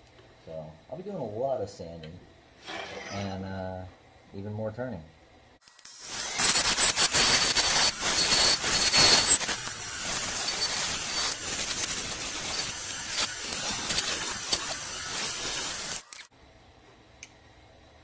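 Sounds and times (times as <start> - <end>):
wood lathe cutting hiss: 5.8 - 16.2.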